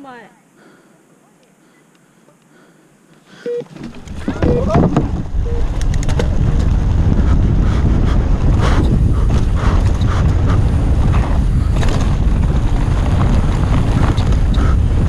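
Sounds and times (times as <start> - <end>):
bike rattling: 3.7 - 15.0
tyres rumbling on dirt: 3.7 - 15.0
wind buffeting microphone: 3.8 - 15.0.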